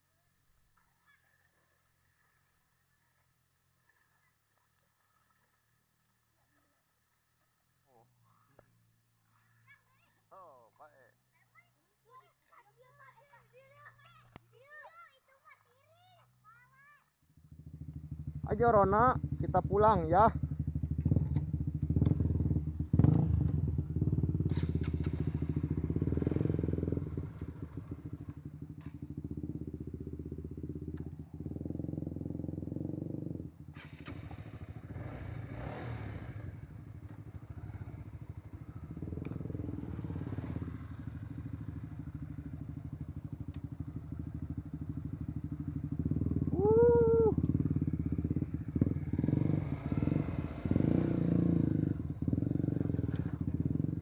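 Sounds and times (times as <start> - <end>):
motorcycle engine running at low revs: 17.3 - 54.0.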